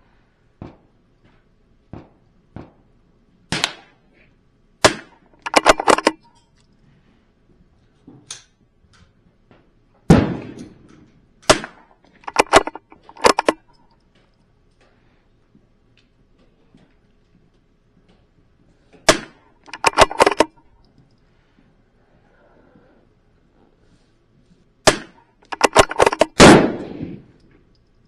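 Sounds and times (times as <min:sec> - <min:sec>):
rifle shots: 0:03.5 - 0:04.0, 0:04.8 - 0:06.2, 0:10.1 - 0:10.9, 0:11.5 - 0:13.6, 0:19.1 - 0:20.6, 0:24.8 - 0:27.4
metallic clicks of rifle action: 0:05.0 - 0:06.8, 0:10.6 - 0:14.9, 0:19.1 - 0:21.2, 0:24.9 - 0:28.0.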